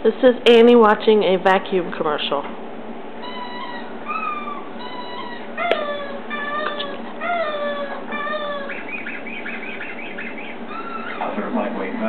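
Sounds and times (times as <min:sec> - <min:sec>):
dog whining: 0:03.2 - 0:11.4.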